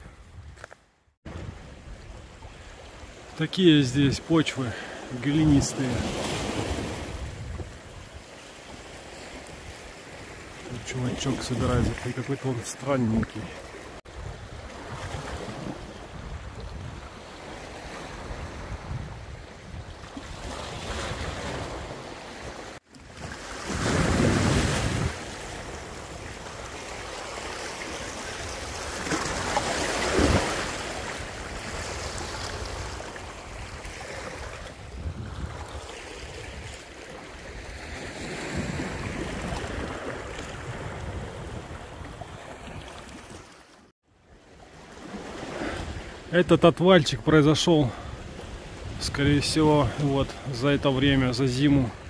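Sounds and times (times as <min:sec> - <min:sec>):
surf washing onto shore: 0:01.3 - 0:19.2, 0:19.9 - 0:43.6
wind on microphone: 0:06.8 - 0:08.1, 0:14.1 - 0:17.2, 0:18.1 - 0:22.0, 0:23.7 - 0:25.3, 0:31.3 - 0:36.8, 0:38.6 - 0:43.1.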